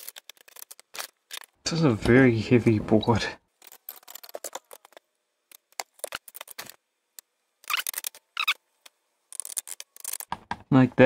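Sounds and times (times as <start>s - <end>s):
small metal parts clicking: 0.0s - 1.6s, 3.6s - 6.8s, 9.3s - 10.3s.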